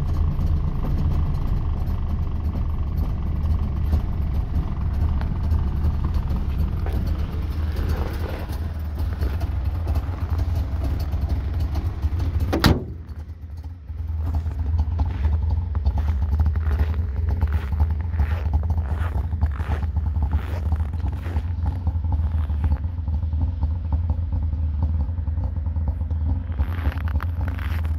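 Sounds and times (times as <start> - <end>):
two-stroke engine idling: 0.0 - 27.9
sharp thump: 12.5 - 13.2.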